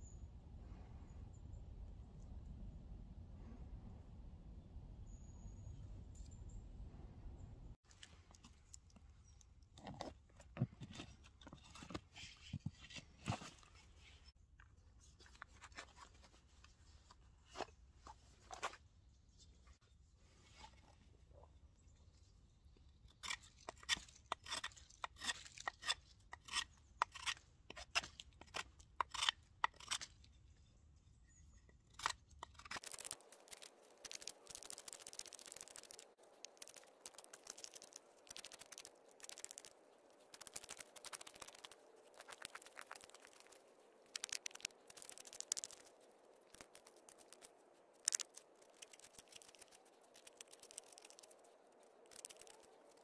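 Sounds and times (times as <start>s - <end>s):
knife scraping wood: 23.2s - 30.4s.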